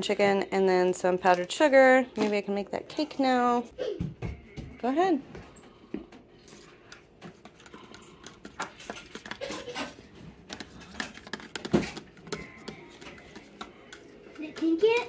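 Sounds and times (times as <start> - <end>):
metal spoon stirring in plastic cup: 6.5 - 15.0.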